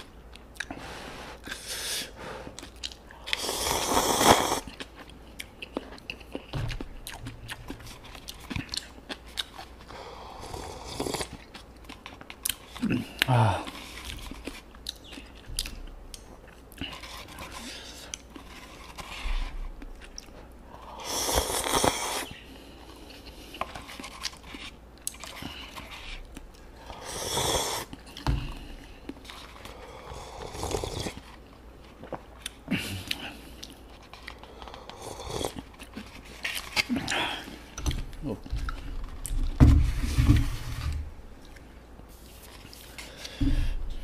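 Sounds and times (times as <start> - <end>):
chewing with wet clicks: 0.0 - 0.8, 2.6 - 3.4, 4.7 - 9.9, 11.2 - 13.3, 13.9 - 16.9, 19.8 - 20.6, 31.0 - 39.4
slurping noodles: 3.3 - 4.8, 21.0 - 22.4, 26.9 - 28.0, 29.7 - 31.3.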